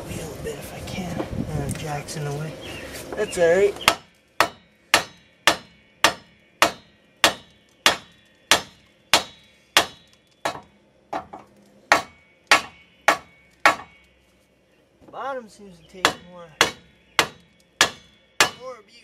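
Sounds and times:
hammer striking metal: 3.9 - 14.0, 16.0 - 18.8.

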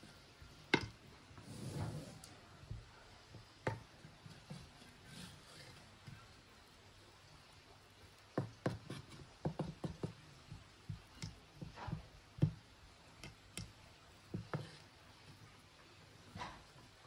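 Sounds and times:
wooden spatula scraping a pot: 4.1 - 6.4, 14.3 - 15.4.

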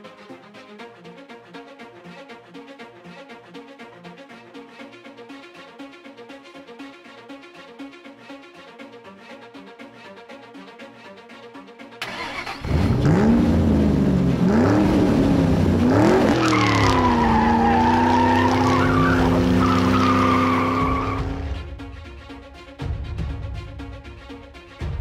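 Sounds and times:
car engine revving: 12.0 - 21.6
tyre squeal: 16.4 - 21.4.

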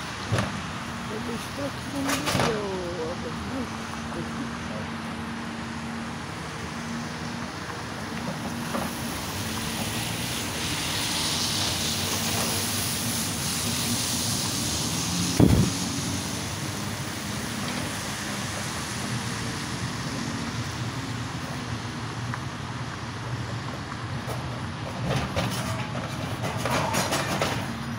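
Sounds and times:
excavator diesel engine running: 0.0 - 27.9.

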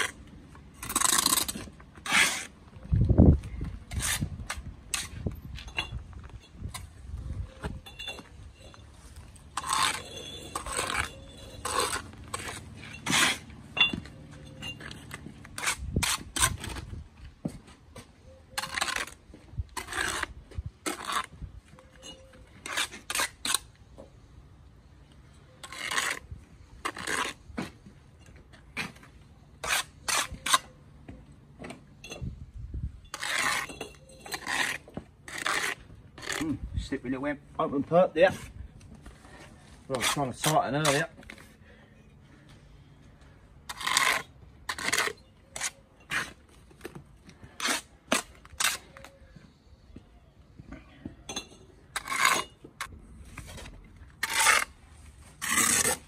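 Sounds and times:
trowel scraping mortar on brick: 0.0 - 2.6, 3.8 - 6.0, 6.6 - 17.0, 18.5 - 23.8, 25.5 - 27.8, 29.6 - 30.8, 33.0 - 37.0, 38.1 - 41.5, 43.7 - 46.7, 47.4 - 49.2, 51.8 - 56.0.

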